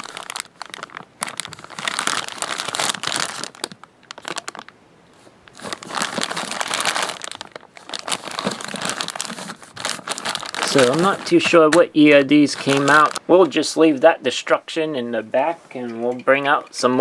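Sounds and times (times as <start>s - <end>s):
plastic bags crinkling: 0.0s - 4.8s, 5.4s - 13.6s.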